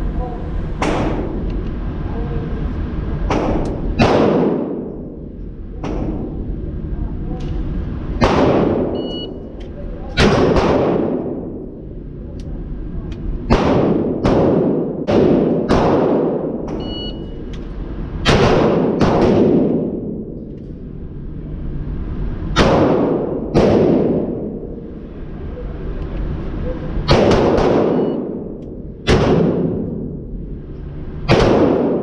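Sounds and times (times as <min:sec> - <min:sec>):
handgun shots echoing indoors: 0:00.8 - 0:01.4, 0:03.3 - 0:05.2, 0:05.8 - 0:06.4, 0:08.2 - 0:09.4, 0:10.1 - 0:11.7, 0:13.5 - 0:17.6, 0:18.2 - 0:20.6, 0:22.5 - 0:24.7, 0:27.0 - 0:30.2, 0:31.2 - 0:32.0.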